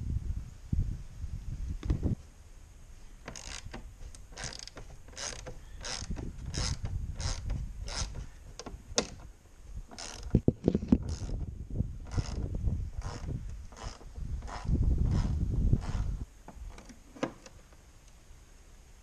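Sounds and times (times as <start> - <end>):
ratchet wrench rasping: 3.3 - 9.2, 9.9 - 10.3, 12.1 - 12.4, 13.0 - 16.2.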